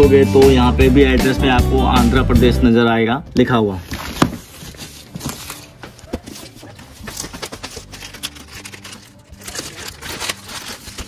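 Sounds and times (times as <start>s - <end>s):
plastic wrapping crinkling: 3.8s - 11.0s.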